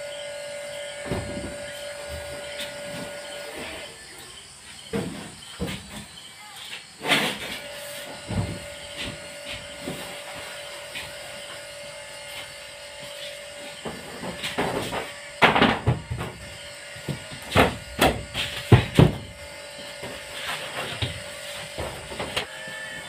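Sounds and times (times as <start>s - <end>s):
plywood board knocking and scraping: 13.8s - 19.4s.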